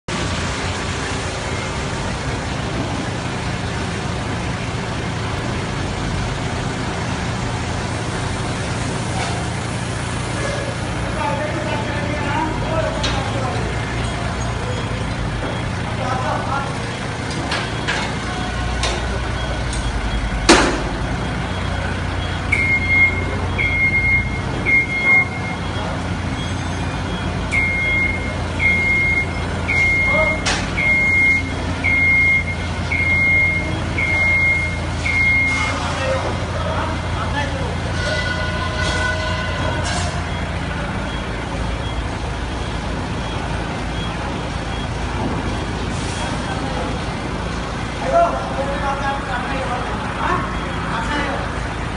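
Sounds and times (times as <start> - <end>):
forklift engine running: 0.1 - 51.9
warning beeper: 17.8 - 36.2
sharp bang: 20.5 - 21.0.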